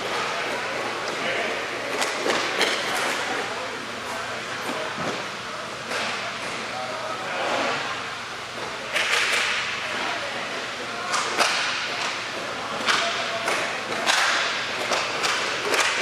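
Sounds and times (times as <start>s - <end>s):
hockey sticks clacking: 0.0s - 3.5s, 5.8s - 6.6s, 8.6s - 10.1s, 11.0s - 16.0s.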